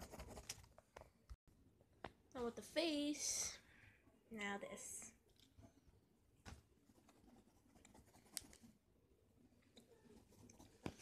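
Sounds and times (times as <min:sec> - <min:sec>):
colouring scratching on paper: 0:06.8 - 0:08.8.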